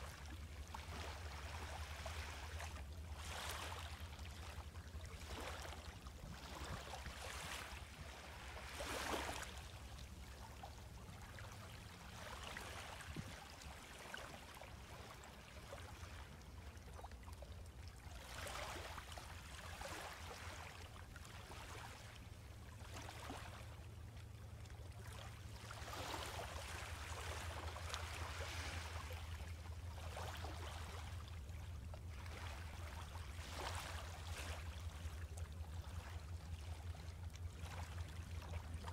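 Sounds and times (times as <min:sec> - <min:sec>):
small waves lapping on sand: 0:00.0 - 0:38.9
steady low rumble: 0:34.0 - 0:38.9.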